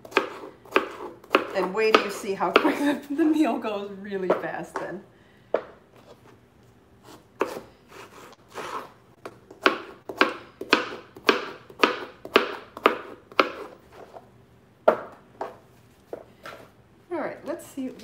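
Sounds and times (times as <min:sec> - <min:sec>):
knife chopping on cutting board: 0:00.0 - 0:02.7, 0:07.1 - 0:13.8.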